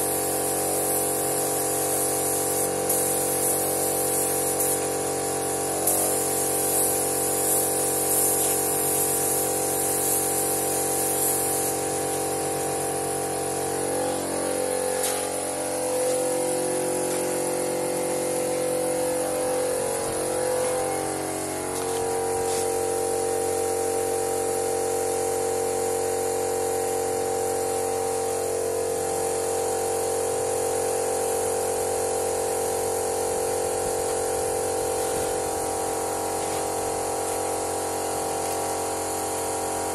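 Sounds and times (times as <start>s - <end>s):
spray gun hissing: 0.0s - 39.9s
motor hum: 11.9s - 23.7s.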